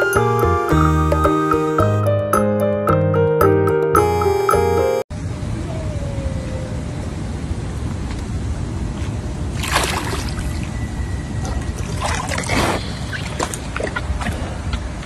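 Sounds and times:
water sloshing: 0:09.6 - 0:10.8, 0:11.4 - 0:14.6.

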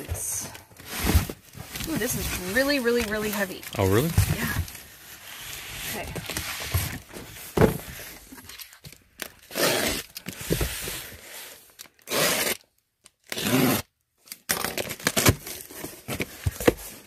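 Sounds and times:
cardboard flaps rustling: 0:00.1 - 0:04.8
cardboard box thumping down: 0:07.6 - 0:08.0
box cutter slitting tape: 0:09.4 - 0:10.5, 0:11.8 - 0:15.8.

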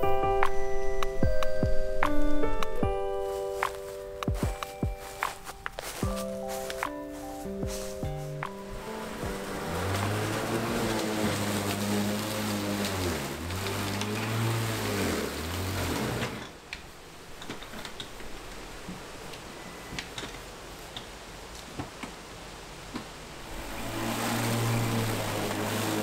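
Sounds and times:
electric lawn mower humming: 0:06.6 - 0:16.6, 0:23.4 - 0:26.0.

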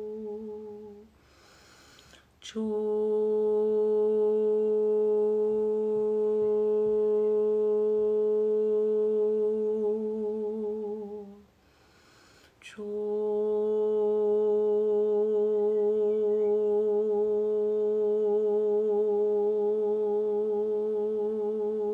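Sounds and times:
woman singing long oo note: 0:00.0 - 0:01.1, 0:02.4 - 0:11.5, 0:12.6 - 0:21.9
sharp breath in: 0:01.1 - 0:02.4, 0:11.6 - 0:12.6.

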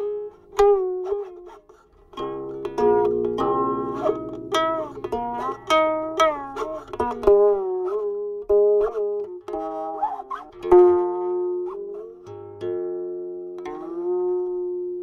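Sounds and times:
plucked zither with sliding notes: 0:00.0 - 0:15.0.

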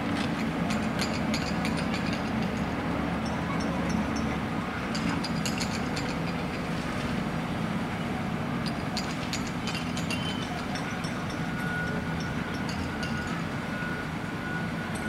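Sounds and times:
street traffic: 0:00.0 - 0:15.0.

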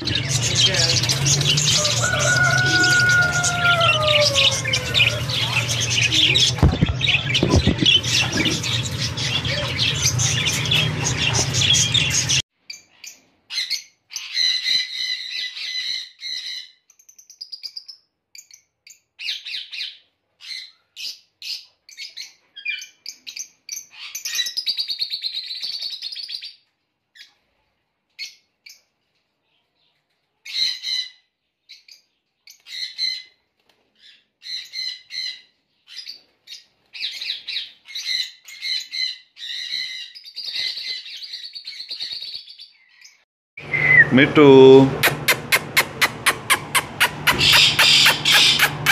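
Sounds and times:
birds chirping: 0:00.0 - 0:17.8, 0:34.0 - 0:48.9
rapid bird warbling: 0:45.0 - 0:48.9.

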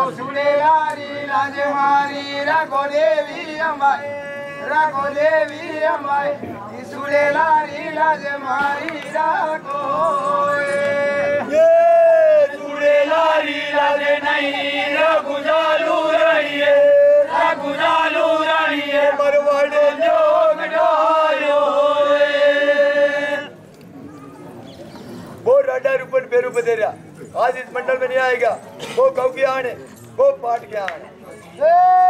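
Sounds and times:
voices chanting in unison: 0:00.0 - 0:23.6.

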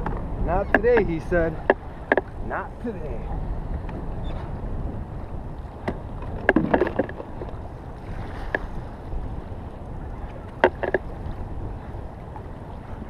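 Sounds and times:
sharp knocks: 0:00.0 - 0:02.3, 0:10.6 - 0:11.0
water lapping against kayak hull: 0:00.0 - 0:13.0
wind buffeting microphone: 0:00.0 - 0:13.0.

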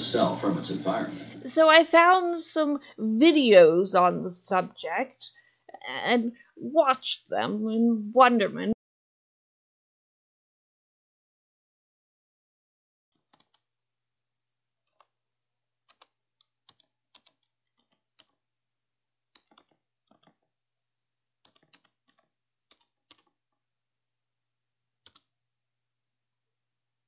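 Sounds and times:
keyboard keys clicking: 0:13.3 - 0:13.6, 0:15.9 - 0:18.4, 0:19.3 - 0:20.4, 0:21.4 - 0:23.4, 0:25.1 - 0:25.3.

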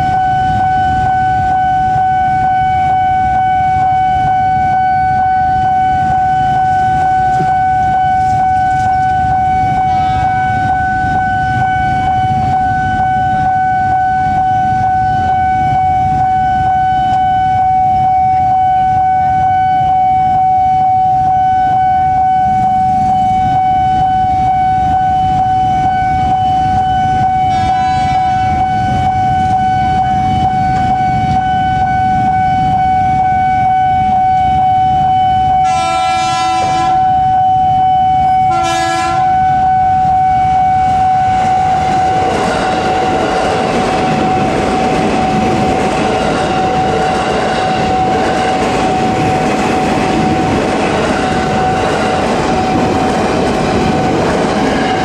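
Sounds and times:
train horn blasts: 0:00.0 - 0:42.5
level crossing alarm tone: 0:00.0 - 0:55.0.

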